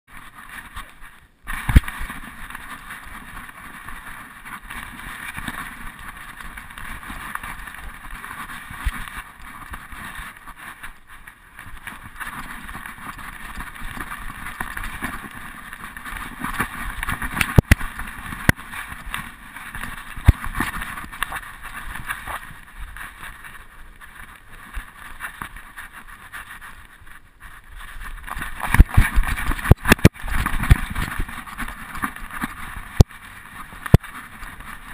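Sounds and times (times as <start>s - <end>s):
muffled rubbing and jostling: 0.1s - 34.9s.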